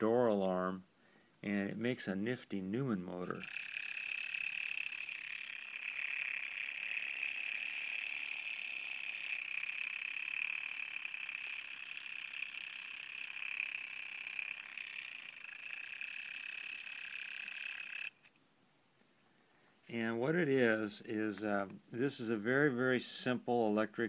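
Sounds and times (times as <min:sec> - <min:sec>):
electric motor buzzing: 0:03.2 - 0:18.3.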